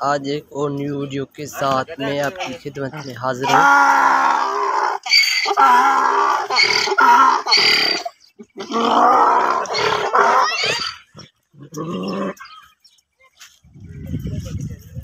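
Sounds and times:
donkey braying: 2.4s - 12.7s.

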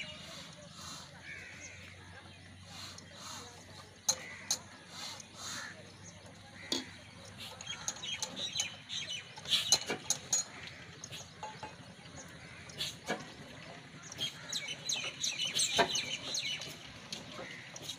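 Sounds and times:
birds chirping: 0.0s - 17.9s
tools clicking on engine: 6.1s - 17.9s.

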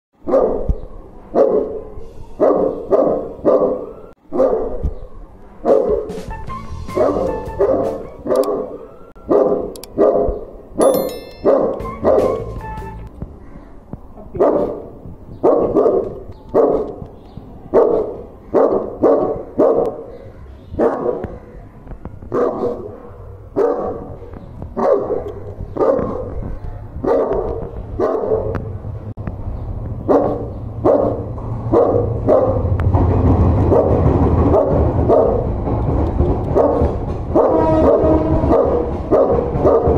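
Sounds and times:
dog barking deep and loud: 0.2s - 0.7s, 1.3s - 4.8s, 5.6s - 6.1s, 7.0s - 10.5s, 14.3s - 17.0s, 17.6s - 28.6s, 30.0s - 32.8s, 33.7s - 35.5s, 36.5s - 39.9s.

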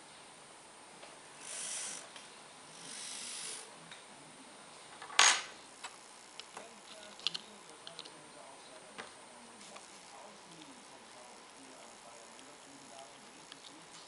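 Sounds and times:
short rustling hisses: 2.8s - 3.7s
metal tool set down on wood: 5.0s - 5.5s.

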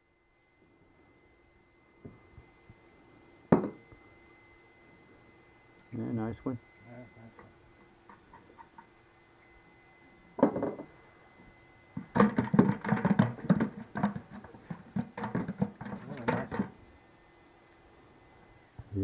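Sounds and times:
knocks: 3.5s - 3.8s, 10.4s - 10.9s, 12.0s - 16.7s.

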